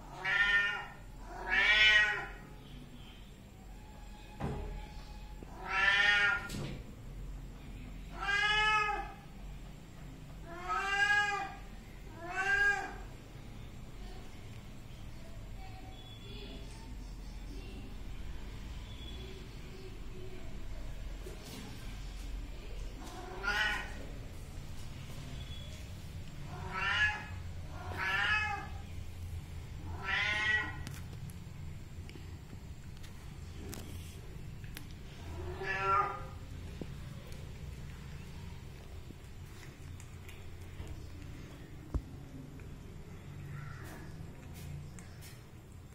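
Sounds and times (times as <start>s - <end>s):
cat meowing: 0.1s - 2.5s, 5.5s - 6.5s, 8.1s - 9.2s, 10.5s - 13.1s, 23.1s - 24.0s, 26.5s - 28.8s, 29.8s - 30.9s, 35.2s - 36.4s.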